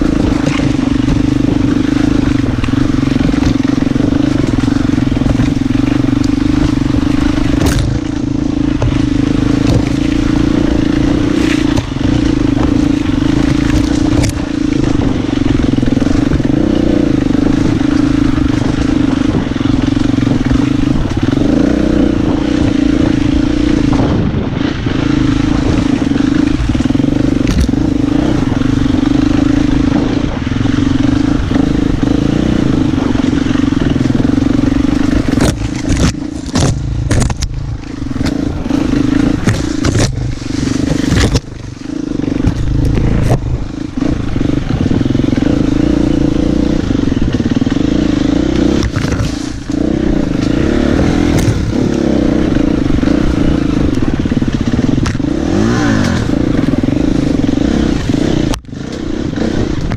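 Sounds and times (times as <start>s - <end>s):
motorcycle engine under load: 0.0s - 59.9s
sharp knocks: 9.6s - 10.0s, 35.3s - 38.4s.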